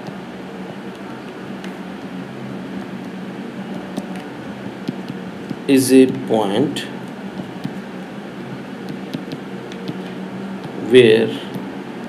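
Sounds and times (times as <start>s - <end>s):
room hum and hiss: 0.0s - 12.0s
stylus tapping on glass screen: 3.7s - 6.2s, 8.5s - 10.8s.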